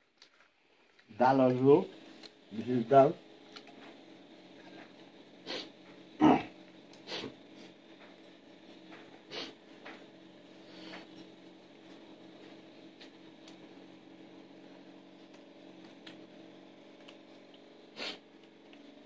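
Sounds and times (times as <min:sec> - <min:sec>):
steady low hum: 0:00.2 - 0:19.0
sniffs and snorts: 0:05.4 - 0:07.7, 0:09.3 - 0:09.6, 0:17.9 - 0:18.3.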